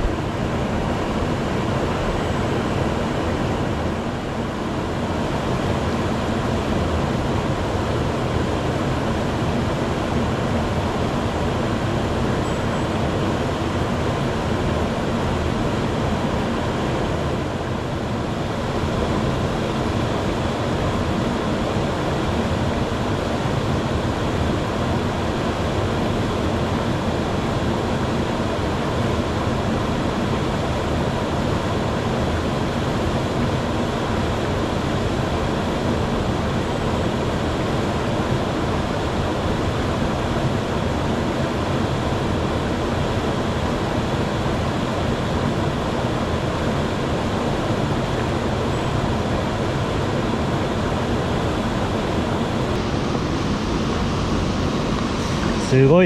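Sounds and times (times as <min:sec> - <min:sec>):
waterfall rushing into pool: 0:49.0 - 0:56.0.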